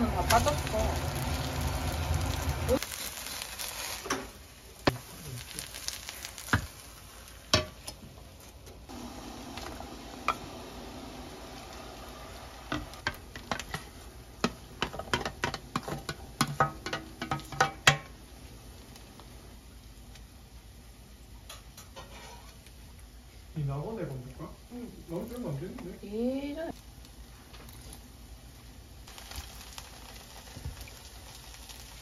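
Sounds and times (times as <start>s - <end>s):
wooden spatula tapping a pot: 12.7s - 18.2s.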